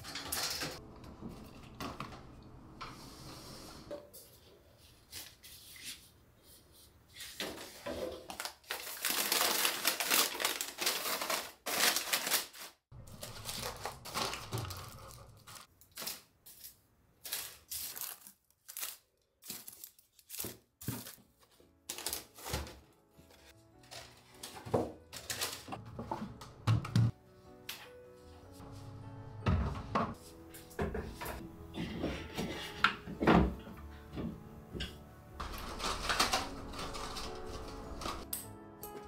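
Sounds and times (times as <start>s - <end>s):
paper crinkling and rustling: 7.2s - 25.8s, 35.4s - 38.3s.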